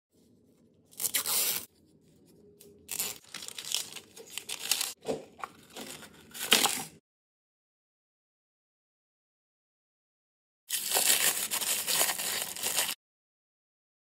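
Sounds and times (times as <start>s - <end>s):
plastic wrap tearing and crinkling: 0.9s - 1.7s, 2.8s - 5.0s, 5.6s - 7.0s, 10.7s - 13.0s.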